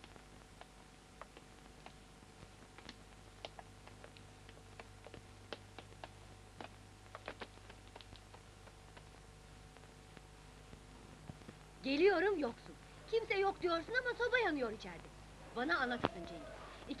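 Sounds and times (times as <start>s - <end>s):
film soundtrack crackle: 0.0s - 17.0s.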